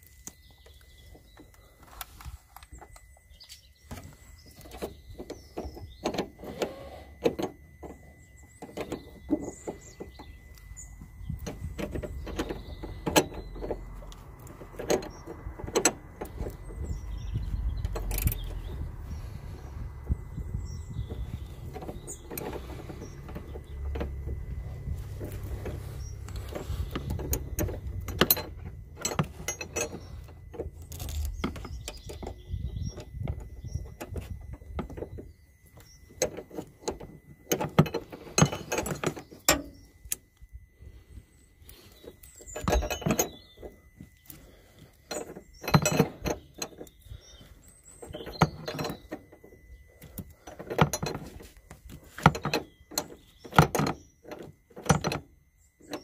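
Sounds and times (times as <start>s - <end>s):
low rumble: 9.5s - 34.7s
wrench clicking and clinking on metal: 45.1s - 47.0s.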